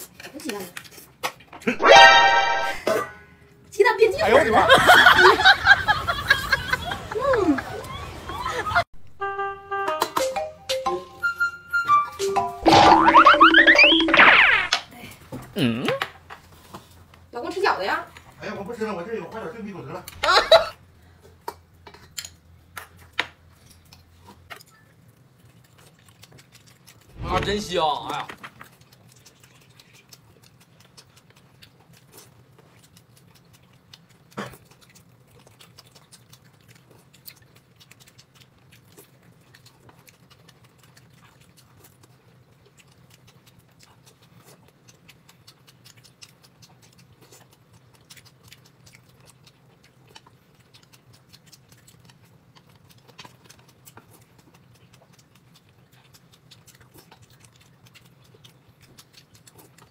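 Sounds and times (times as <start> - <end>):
chewing clicks and taps: 21.2 - 27.1, 28.1 - 59.9.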